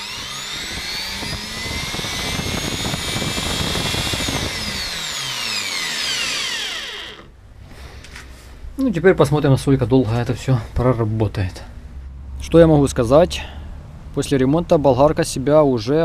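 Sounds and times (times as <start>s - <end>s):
angle grinder motor whine: 0.0s - 7.4s.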